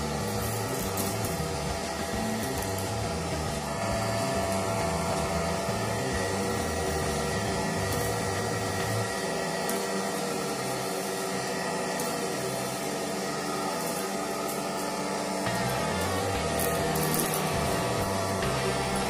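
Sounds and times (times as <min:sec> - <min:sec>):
vacuum cleaner motor whining: 0:00.0 - 0:19.0.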